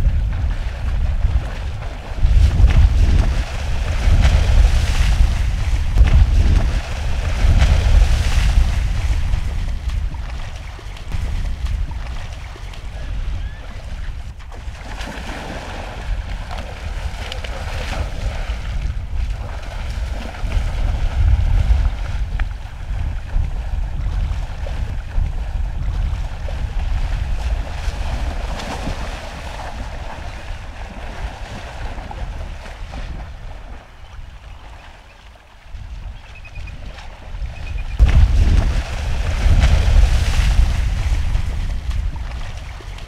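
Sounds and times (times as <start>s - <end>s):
creek water rushing: 0.0s - 22.0s
wind buffeting microphone: 0.0s - 43.0s.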